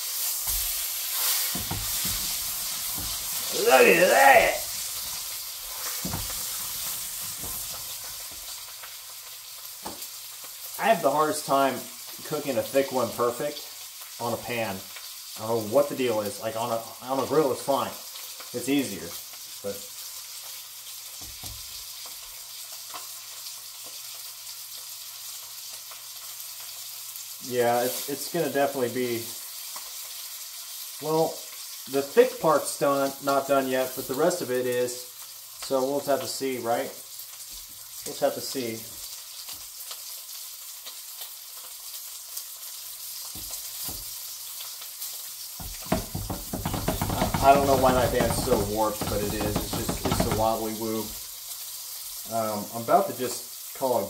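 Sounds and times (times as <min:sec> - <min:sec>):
steak sizzling in a frying pan: 0:00.0 - 0:54.0
low knock: 0:45.6 - 0:50.6.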